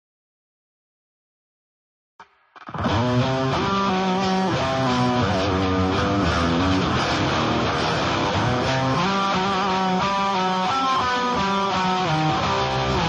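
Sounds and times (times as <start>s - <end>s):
guitar-led background music: 2.6s - 13.0s.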